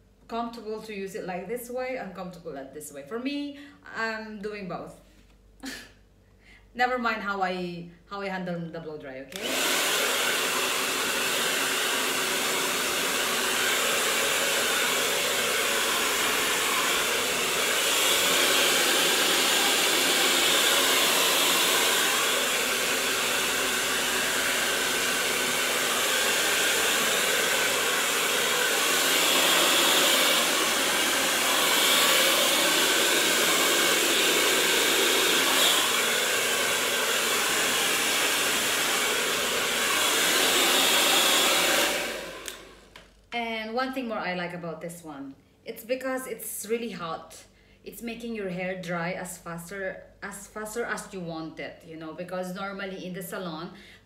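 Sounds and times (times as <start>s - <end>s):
hair dryer blowing: 9.3s - 43.2s.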